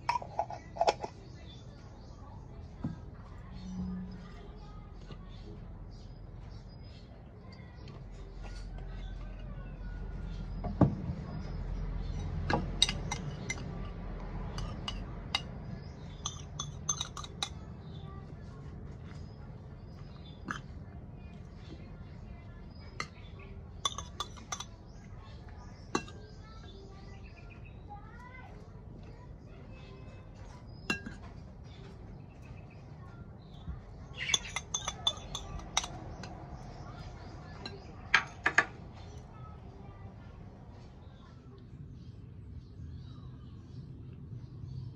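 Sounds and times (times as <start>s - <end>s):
cutlery clinking against dish: 0.0s - 1.2s, 12.2s - 13.9s, 14.5s - 15.5s, 16.1s - 17.6s, 23.8s - 24.8s, 30.9s - 31.3s, 34.2s - 36.4s.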